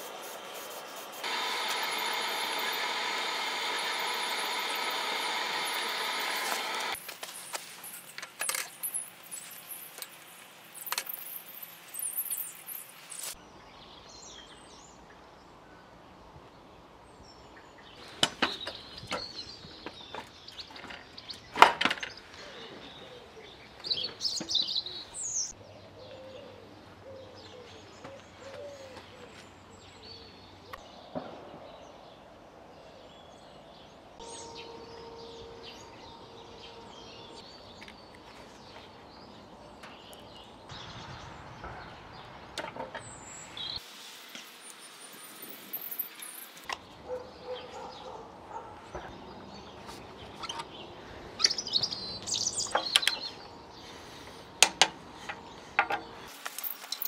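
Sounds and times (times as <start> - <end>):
handling rustle: 6.4 - 13.4, 55.0 - 57.0
birds chirping: 16.6 - 43.8, 44.5 - 57.0.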